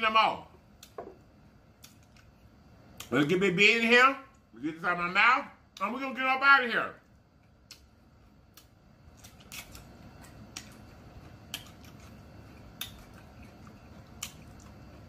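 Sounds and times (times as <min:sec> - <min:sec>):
person chewing salad: 0:01.8 - 0:03.1, 0:07.4 - 0:15.0.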